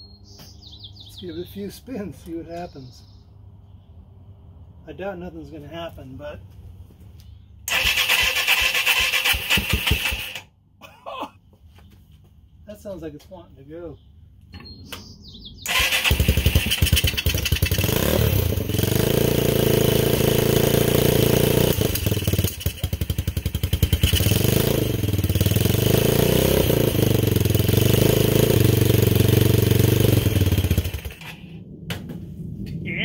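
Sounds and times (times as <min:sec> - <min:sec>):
small motorcycle engine running: 0:07.7 - 0:10.4, 0:15.7 - 0:31.4.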